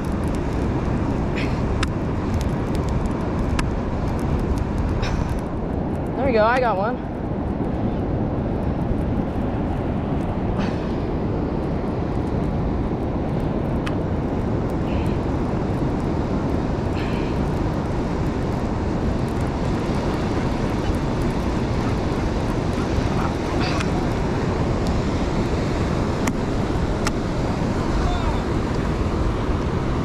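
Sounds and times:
ocean surf: 0.0s - 30.0s
wind rumble on microphone: 0.0s - 30.0s.

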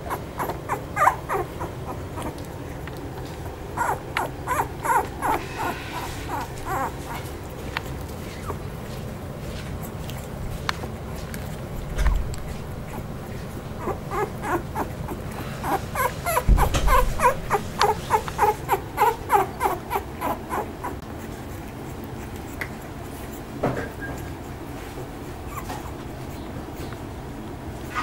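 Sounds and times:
puppies whimpering: 0.0s - 10.7s, 11.6s - 28.0s
low bump: 16.3s - 18.2s.

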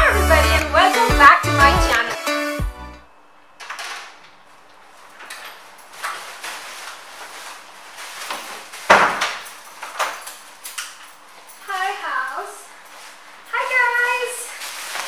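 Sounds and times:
plastic bag rustling: 3.5s - 15.0s.

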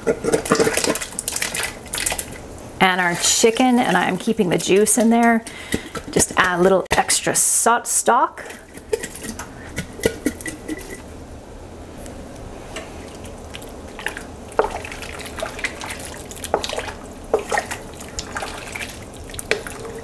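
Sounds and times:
broth sloshing and dripping: 0.0s - 6.6s, 12.8s - 20.0s.

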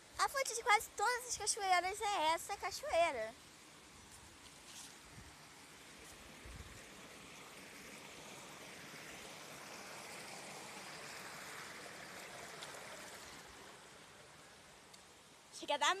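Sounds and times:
water spilling over a weir: 4.5s - 15.4s.

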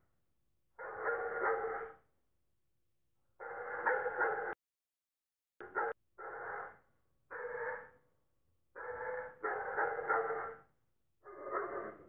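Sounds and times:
dog barking: 0.8s - 2.0s, 3.4s - 4.6s, 5.6s - 8.0s, 8.8s - 12.0s.

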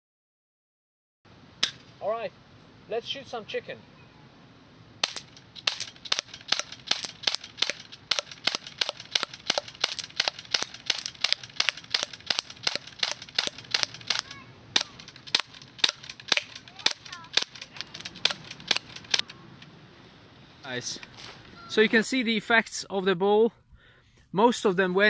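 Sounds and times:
airgun shots cracking: 5.0s - 19.4s.

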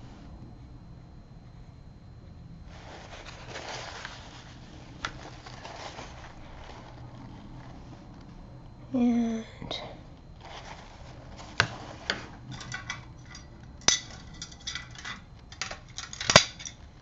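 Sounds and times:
soft rustling: 2.7s - 8.8s, 10.2s - 12.4s.

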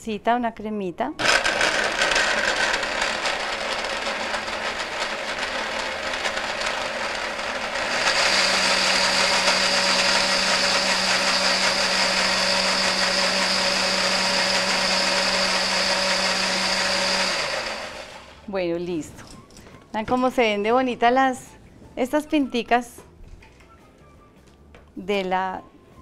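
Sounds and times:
blender running: 1.2s - 18.5s.

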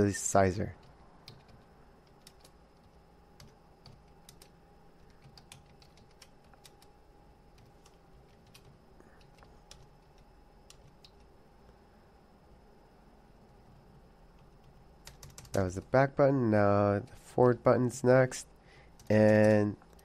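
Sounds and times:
faint computer keyboard typing: 0.7s - 6.9s, 7.5s - 11.3s, 13.4s - 15.8s, 18.9s - 20.0s.

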